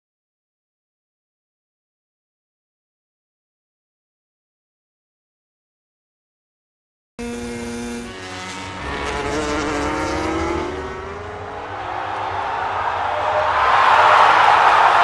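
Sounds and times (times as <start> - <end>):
racing motorcycle engines revving: 7.2 - 14.9
noisy roar: 7.2 - 15.0.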